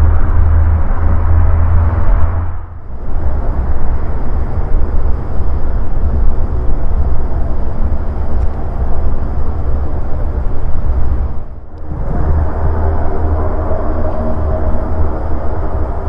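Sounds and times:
faint high whine: 0:00.0 - 0:16.0
turboprop engines rumbling: 0:00.0 - 0:16.0.

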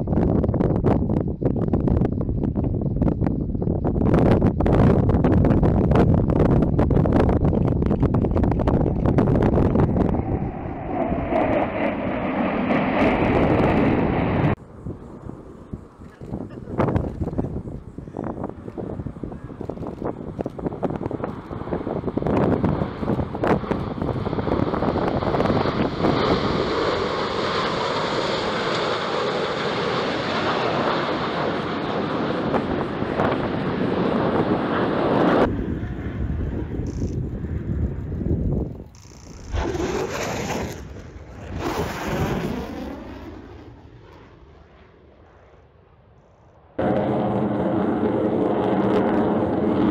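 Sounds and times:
faint rumble: 0:00.0 - 0:25.9
wind buffeting microphone: 0:00.0 - 0:27.2, 0:31.6 - 0:43.2
jet engine roar: 0:00.0 - 0:49.9
jet whine falling in pitch: 0:08.4 - 0:19.8, 0:32.4 - 0:44.6.

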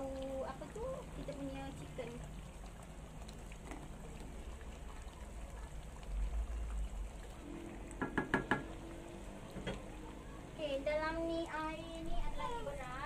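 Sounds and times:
water dripping from strainer: 0:00.0 - 0:10.1.

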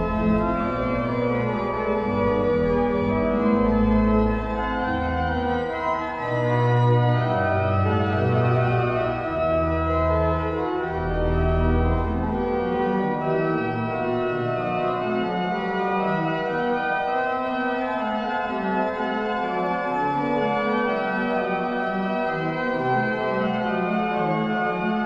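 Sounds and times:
deep organ bass notes: 0:00.0 - 0:05.5
organ chords: 0:00.0 - 0:25.0.

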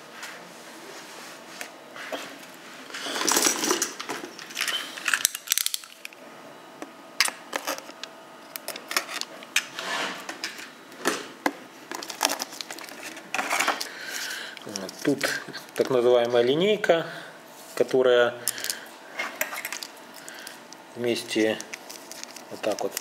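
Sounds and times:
plastic packaging crinkling: 0:03.1 - 0:06.2, 0:07.2 - 0:09.5, 0:11.9 - 0:16.4, 0:18.5 - 0:23.0.

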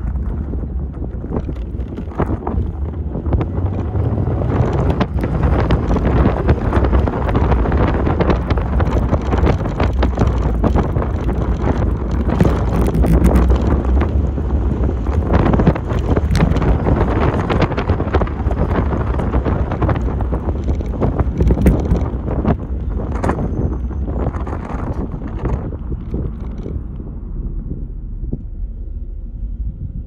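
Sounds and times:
car engine and road drone: 0:00.0 - 0:30.0
wind buffeting microphone: 0:00.0 - 0:30.0.

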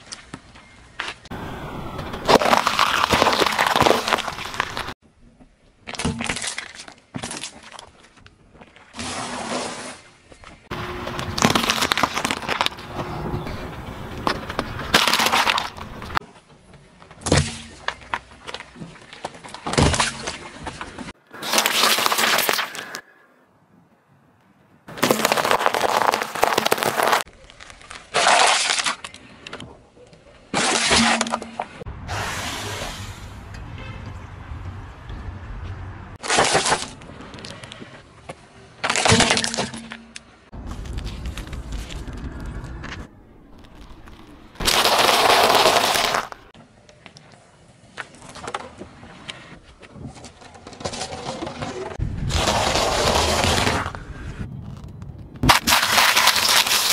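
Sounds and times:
small balls crackling under tyre: 0:00.0 - 0:09.0, 0:10.2 - 0:23.1, 0:24.9 - 0:30.3, 0:35.0 - 0:56.9
tyre crushing things on asphalt: 0:01.8 - 0:05.0, 0:10.7 - 0:13.2, 0:14.1 - 0:16.2, 0:24.9 - 0:27.3, 0:43.6 - 0:46.5
plastic bottle crunching: 0:02.2 - 0:05.0, 0:10.7 - 0:12.9, 0:14.9 - 0:16.2, 0:21.4 - 0:23.0, 0:24.9 - 0:29.2, 0:43.6 - 0:46.5, 0:55.4 - 0:56.9.

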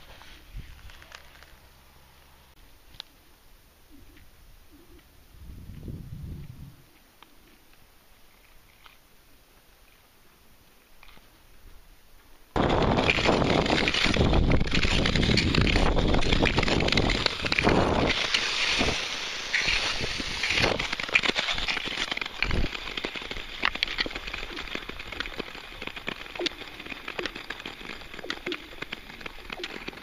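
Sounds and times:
wind and skate blade rush: 0:05.3 - 0:06.9, 0:12.6 - 0:30.0
skate blades clicking on ice: 0:12.6 - 0:30.0.

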